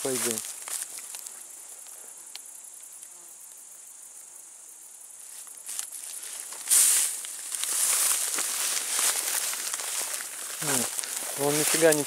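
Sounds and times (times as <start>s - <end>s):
footsteps rustling through wheat: 0.0s - 1.4s, 5.2s - 12.0s
crickets chirping: 0.0s - 12.0s.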